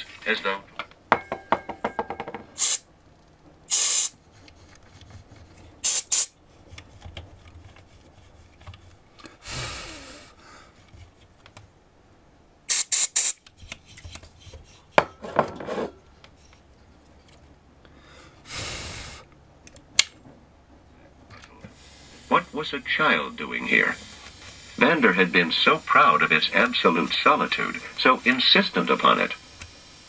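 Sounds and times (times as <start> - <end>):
aerosol spray hissing bursts: 2.6 - 2.8, 3.7 - 4.2, 5.8 - 6.4, 12.7 - 13.4, 21.7 - 22.4, 23.6 - 30.0.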